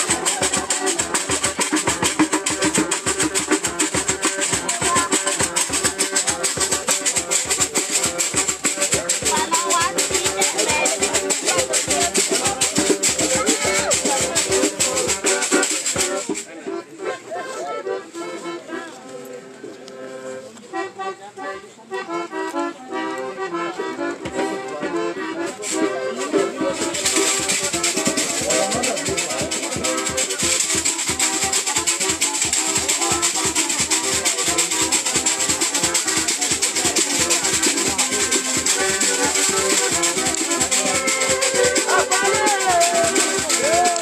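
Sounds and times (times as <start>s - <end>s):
rattle shaken: 0.0s - 16.5s, 26.7s - 44.0s
accordion melody: 0.0s - 44.0s
voices singing: 40.6s - 44.0s.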